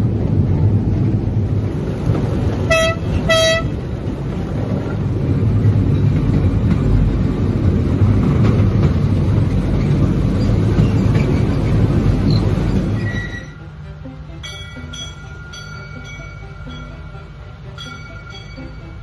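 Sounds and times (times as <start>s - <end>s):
miniature train rumbling: 0.0s - 19.0s
train horn toots: 2.7s - 3.8s.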